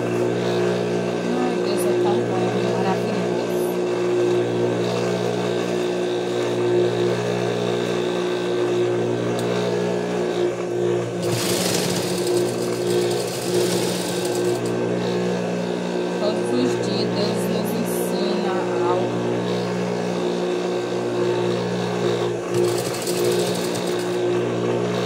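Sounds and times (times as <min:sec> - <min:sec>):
sewing machine motor humming: 0:00.0 - 0:25.0
sewing machine stitching: 0:11.2 - 0:14.8, 0:22.5 - 0:24.3.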